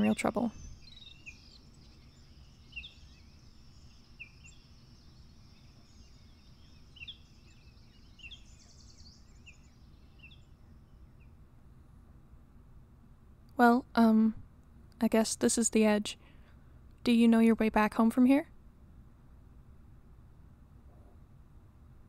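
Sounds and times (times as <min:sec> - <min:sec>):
bird trill: 0:00.0 - 0:11.3
small birds chirping: 0:00.0 - 0:11.4.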